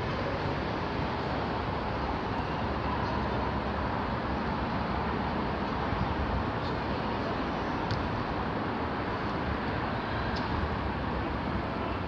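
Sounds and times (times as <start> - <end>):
traffic rumble overhead: 0.0 - 12.0.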